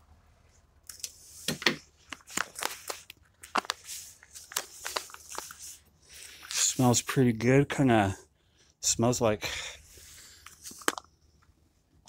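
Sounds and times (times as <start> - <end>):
foil food pouch crinkling: 2.0 - 6.6.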